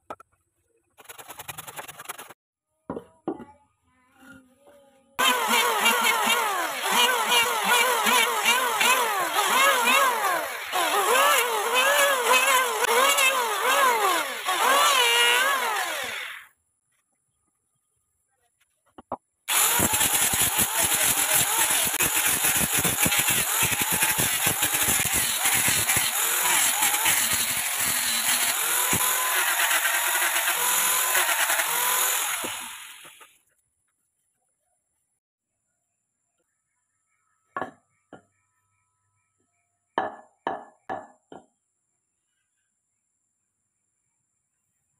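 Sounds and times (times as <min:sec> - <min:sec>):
angle grinder sanding wood: 0:05.2 - 0:16.5, 0:19.5 - 0:33.3
electric planer shaving wood: 0:05.2 - 0:16.5, 0:19.5 - 0:33.3.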